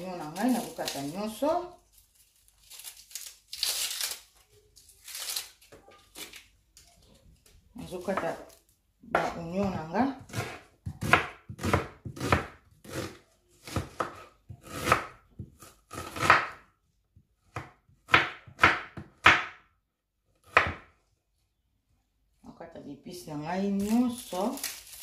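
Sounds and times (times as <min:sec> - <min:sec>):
knife slicing onion on board: 0:09.1 - 0:16.6.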